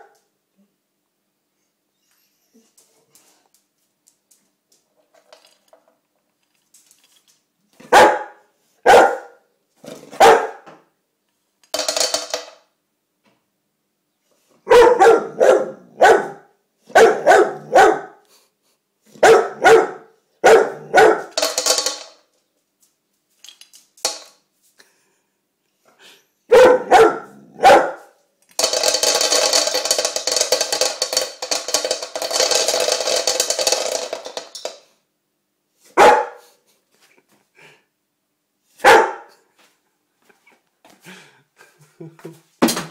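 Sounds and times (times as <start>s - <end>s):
kibble rattling into metal bowl: 5.1s - 7.4s, 11.7s - 12.6s, 21.2s - 22.2s, 28.5s - 34.9s
dog barking: 7.8s - 9.4s, 10.2s - 10.6s, 14.6s - 18.2s, 19.2s - 21.3s, 26.5s - 28.1s, 36.0s - 36.6s, 38.8s - 39.4s.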